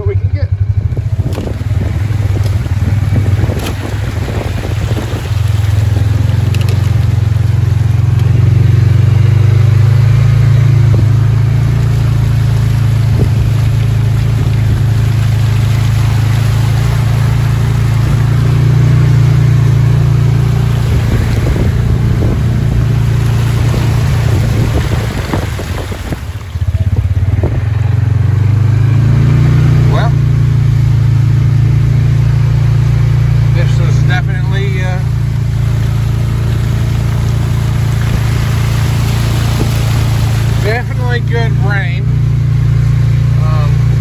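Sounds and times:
vehicle engine droning: 0.0 - 44.0
tyre noise: 0.8 - 8.4
rain hiss: 1.3 - 26.8, 30.4 - 41.6.

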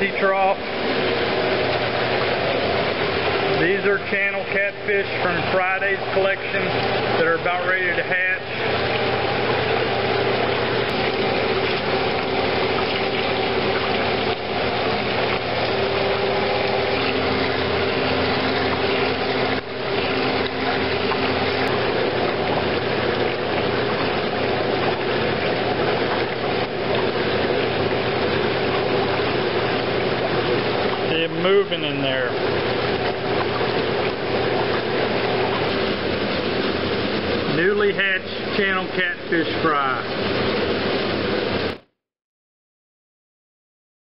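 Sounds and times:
low machinery hum: 0.0 - 41.8
churning water rushing: 0.0 - 41.9.

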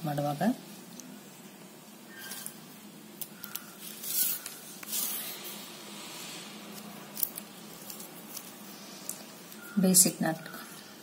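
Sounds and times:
plastic wire strands rustling: 2.1 - 10.8.

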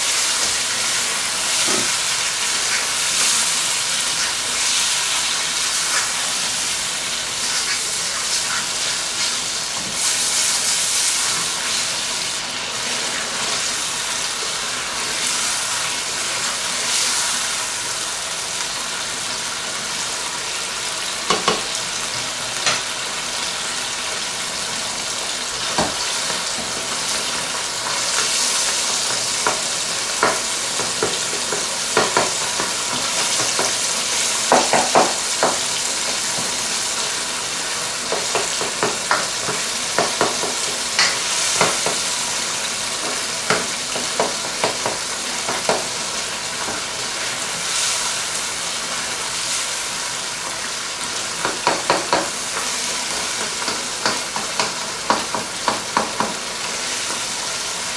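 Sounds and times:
food sizzling in a pan: 0.0 - 57.9
spatula scraping a pan: 7.3 - 11.8.

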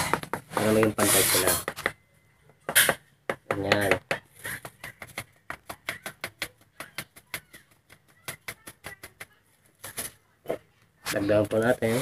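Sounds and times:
tool tapping wooden mold frame: 2.7 - 8.7.

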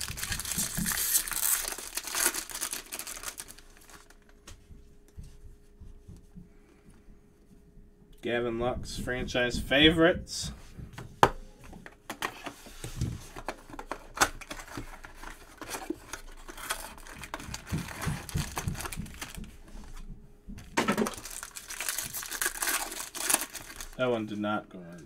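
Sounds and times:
wrapper tearing and crinkling: 0.0 - 4.3, 13.7 - 19.4, 20.8 - 24.0.

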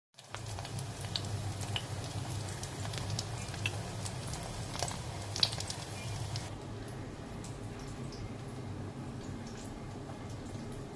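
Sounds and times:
oil sizzling with pops: 0.2 - 6.5.

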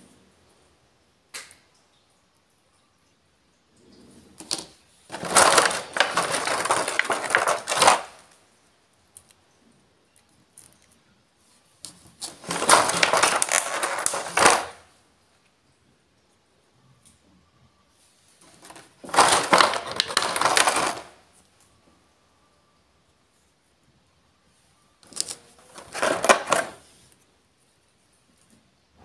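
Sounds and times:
plastic packaging crackling: 4.4 - 8.4, 11.9 - 14.9, 18.4 - 21.2, 25.0 - 26.9.

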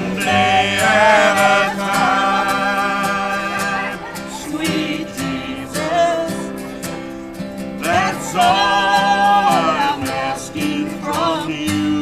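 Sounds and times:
acoustic guitar strumming: 0.0 - 12.0
person singing: 7.8 - 12.0.

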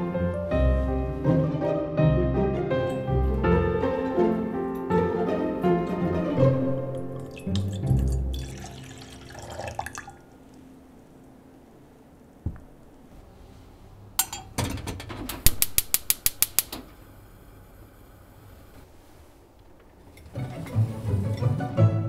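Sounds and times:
liquid trickling into saucepan: 7.2 - 10.4
gas hob igniter clicking: 15.3 - 16.9.

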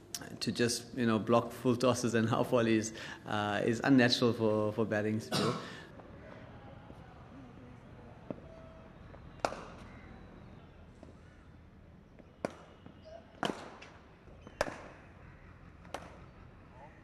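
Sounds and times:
cricket bat striking ball: 9.3 - 10.2, 12.2 - 15.1, 15.8 - 16.4.

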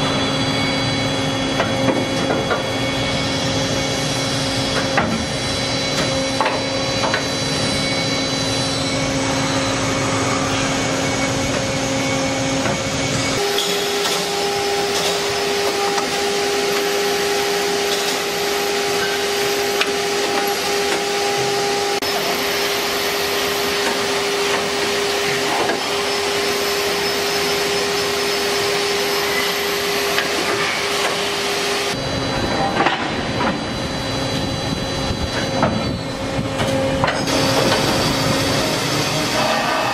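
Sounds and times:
drilling machine whine: 0.0 - 39.9.

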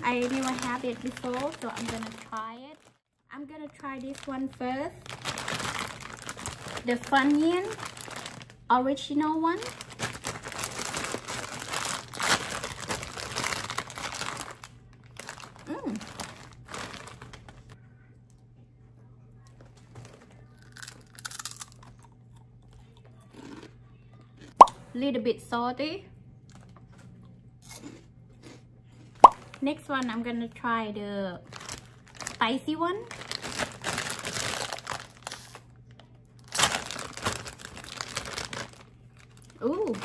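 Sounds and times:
snack bag crinkling: 0.0 - 3.0, 3.7 - 8.6, 9.5 - 17.8, 19.6 - 23.7, 27.6 - 28.6, 31.4 - 40.0
crunching: 9.7 - 17.6, 19.9 - 23.7, 36.4 - 40.0
snack chewing: 20.5 - 24.7, 26.5 - 29.5.

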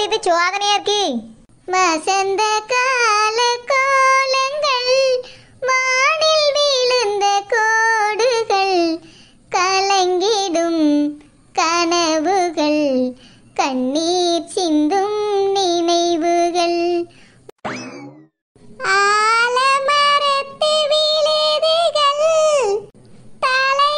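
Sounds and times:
high childlike voice singing: 0.0 - 17.1, 18.8 - 23.9
breaths: 5.2 - 5.6, 9.0 - 9.5, 13.2 - 13.6, 17.1 - 17.5.

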